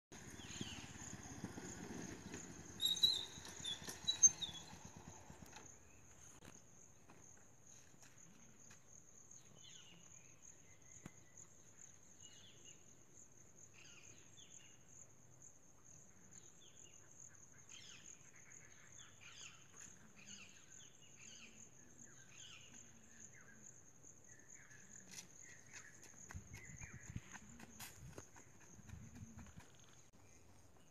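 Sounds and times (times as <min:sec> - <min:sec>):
short bird chirps: 0:02.8 - 0:04.7.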